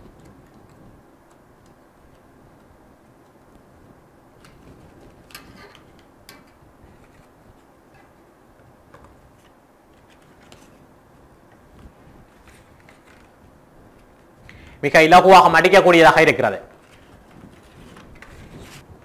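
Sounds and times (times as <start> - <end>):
card creasing clicks and crackles: 0.0 - 3.8, 11.5 - 14.6, 16.7 - 18.8
faint steady hiss: 0.0 - 19.0.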